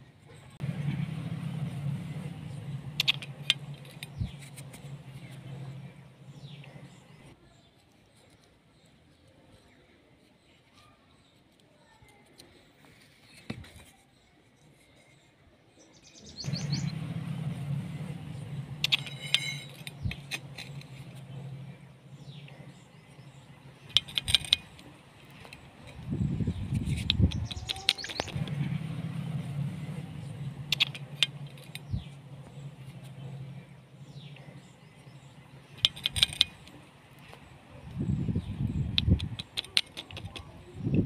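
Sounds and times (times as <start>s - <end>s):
low steady hum: 0.4s - 7.3s
low hum: 0.6s - 7.3s, 16.4s - 39.4s
sharp clicks: 2.2s - 5.8s, 22.3s - 26.0s, 26.6s - 28.5s, 29.9s - 32.2s, 35.7s - 38.0s, 38.8s - 41.0s
bird chirping faintly: 14.1s - 41.0s
metallic clicks of pliers: 23.9s - 25.6s, 35.8s - 37.3s, 38.9s - 40.5s
faint bird chirps: 25.3s - 28.4s.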